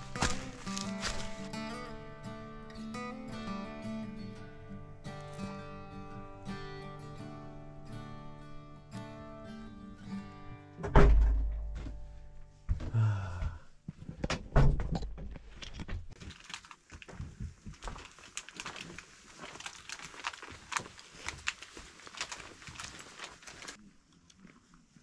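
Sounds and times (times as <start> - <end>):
acoustic guitar music: 0.0 - 12.8
heavy deep thumps: 10.8 - 13.6.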